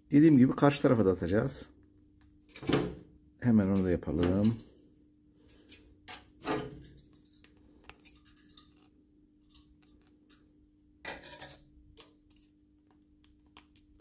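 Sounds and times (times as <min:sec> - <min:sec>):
hands handling wire and strap: 0:06.8 - 0:10.5.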